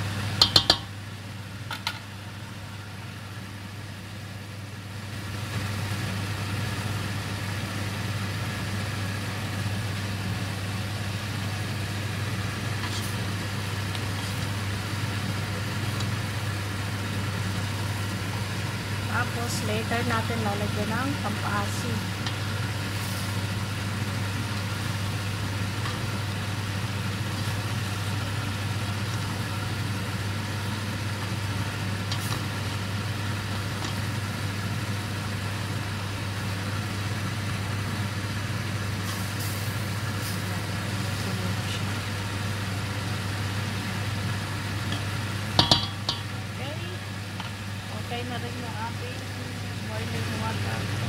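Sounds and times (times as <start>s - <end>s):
spoon knocking against pot: 0.4s - 0.9s, 45.6s - 46.3s
wooden spoon stirring in a pot: 12.2s - 19.6s.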